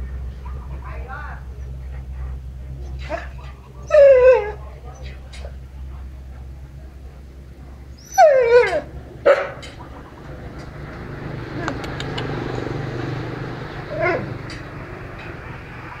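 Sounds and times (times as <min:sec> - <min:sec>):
dog whining: 0:02.9 - 0:05.2, 0:07.9 - 0:08.9, 0:13.9 - 0:14.4
dog yip: 0:08.0 - 0:09.6.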